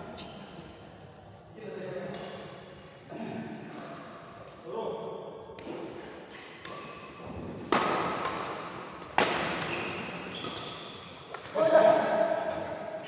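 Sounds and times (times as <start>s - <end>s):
racket striking shuttlecock: 6.6s - 11.5s.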